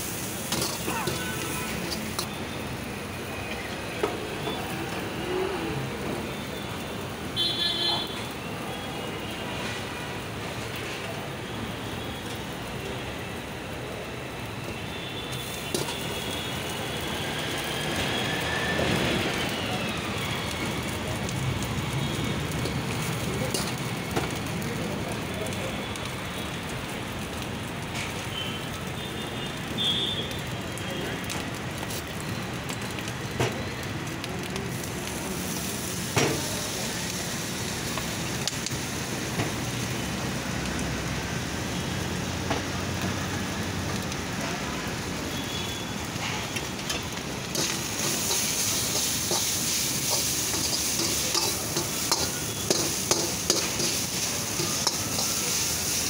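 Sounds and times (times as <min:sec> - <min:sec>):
food sizzling in a wok: 0:00.0 - 0:56.0
ladle scraping a wok: 0:00.1 - 0:02.3, 0:47.5 - 0:56.0.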